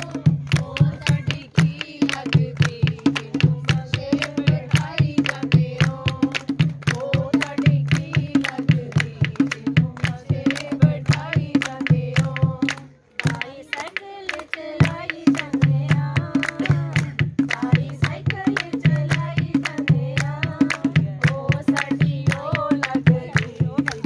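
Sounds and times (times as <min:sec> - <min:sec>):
hand drum beating: 0:00.0 - 0:13.5, 0:14.8 - 0:24.0
hand claps: 0:00.0 - 0:24.0
women singing folk song: 0:00.0 - 0:24.0.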